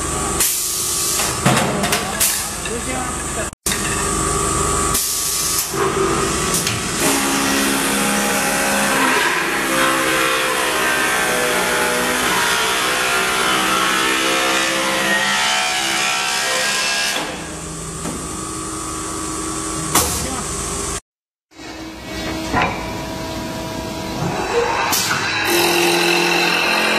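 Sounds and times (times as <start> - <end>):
wood lathe cutting stick: 7.0 - 17.2, 25.2 - 26.9.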